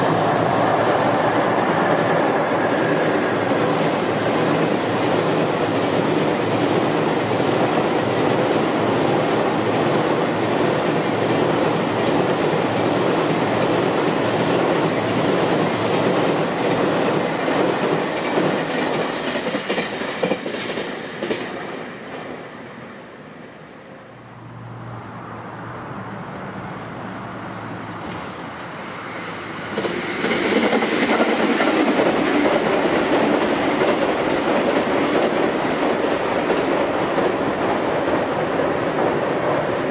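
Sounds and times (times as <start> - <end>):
freight train rumbling over bridge: 0.0 - 25.1, 26.5 - 39.9
commuter train rumble: 0.0 - 39.9
wheels clickety-clack on rail joints: 1.2 - 22.3, 29.2 - 39.9.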